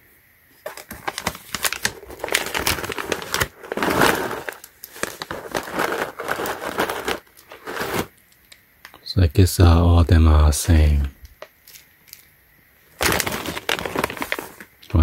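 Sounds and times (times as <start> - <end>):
plastic pouch crinkling: 0.6 - 8.2, 13.0 - 15.0.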